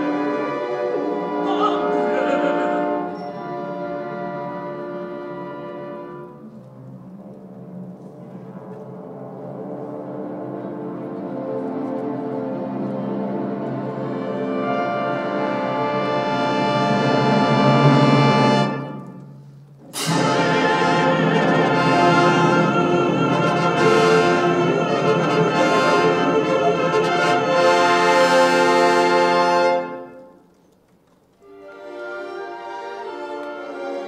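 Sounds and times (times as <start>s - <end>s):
brass section: 0.0s - 6.5s, 13.4s - 30.4s
symphony orchestra playing: 0.0s - 30.5s, 31.4s - 34.0s.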